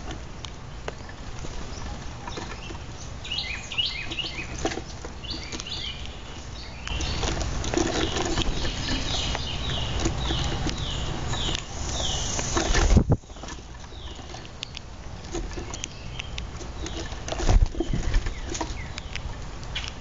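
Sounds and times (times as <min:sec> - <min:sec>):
wings rustling: 0:01.0 - 0:14.5
grackles chirping: 0:01.1 - 0:14.8
beaks tapping on wooden tray: 0:01.7 - 0:20.0.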